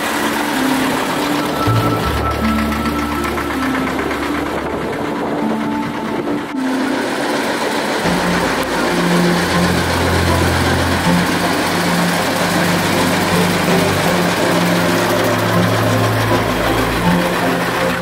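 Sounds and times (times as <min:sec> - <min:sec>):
tractor engine running: 0:00.0 - 0:18.0.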